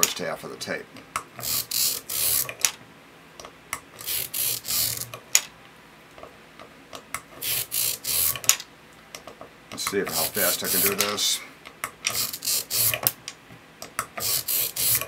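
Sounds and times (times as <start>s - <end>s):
magnets rubbing across tape: 1.4s - 2.7s, 4.0s - 5.2s, 7.4s - 8.6s, 10.0s - 11.3s, 12.1s - 13.2s, 14.2s - 15.0s.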